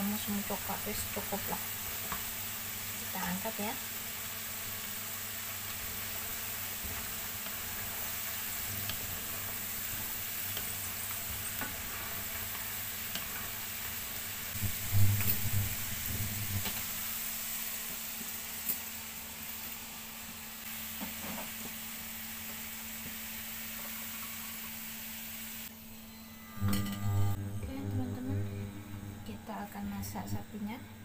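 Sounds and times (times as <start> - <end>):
potatoes sizzling in hot oil: 0.0 - 25.7.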